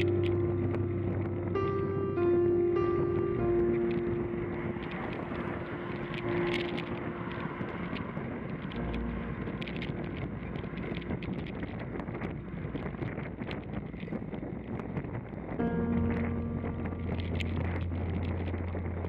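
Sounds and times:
background music: 0:00.0 - 0:13.2, 0:15.6 - 0:19.0
wind buffeting microphone: 0:00.0 - 0:19.0
bicycle clicks and rattles: 0:04.7 - 0:12.2.

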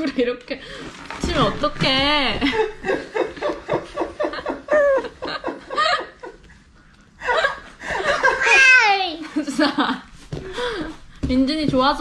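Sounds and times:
laughter bursts: 0:07.2 - 0:10.1.

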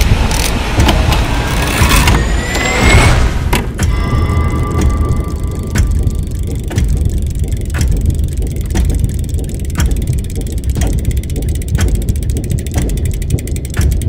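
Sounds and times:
deep rumbling drone: 0:00.0 - 0:14.0
clock-like tick: 0:03.6 - 0:14.0.

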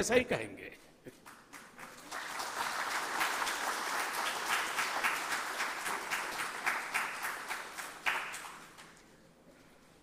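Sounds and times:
audience applauding: 0:01.1 - 0:09.0.

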